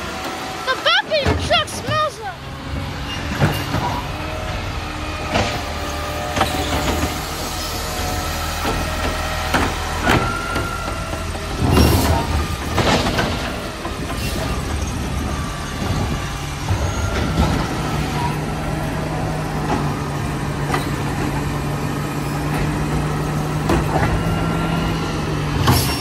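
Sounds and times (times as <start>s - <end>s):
garbage truck engine running: 0.0s - 26.0s
knocks and clanks: 2.8s - 4.2s, 5.2s - 18.4s, 19.5s - 21.7s, 22.3s - 24.5s, 25.5s - 26.0s.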